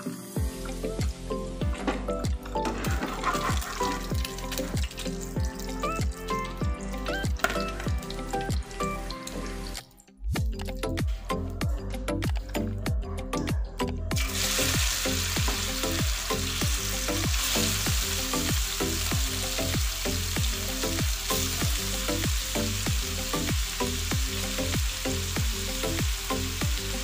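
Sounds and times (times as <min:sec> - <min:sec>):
music with a steady beat: 0:00.0 - 0:09.4, 0:10.3 - 0:27.0
meat sizzling in a frying pan: 0:02.9 - 0:06.2, 0:14.2 - 0:27.0.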